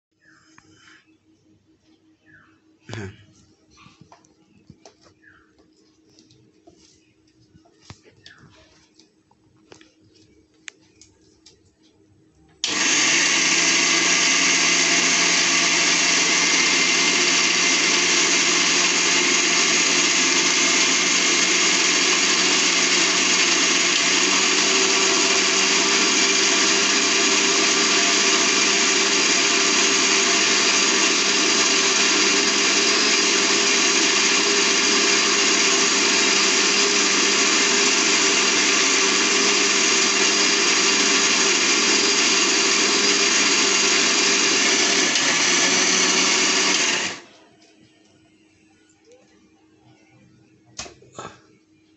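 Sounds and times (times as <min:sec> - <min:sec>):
mixer grinder motor whine: 0:12.6 - 0:47.4.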